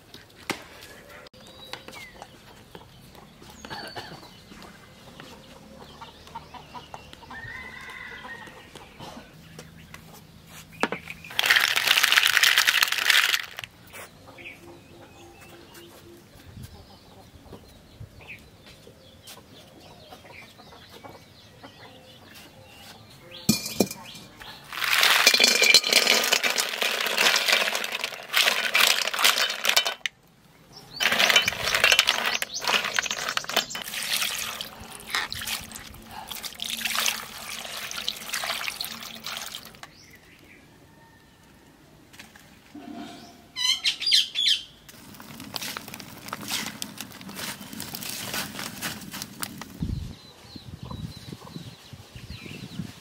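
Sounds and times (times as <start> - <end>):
mussel shells clattering in metal pot: 11.2 - 13.7, 23.5 - 30.2, 30.9 - 39.9, 44.9 - 49.8.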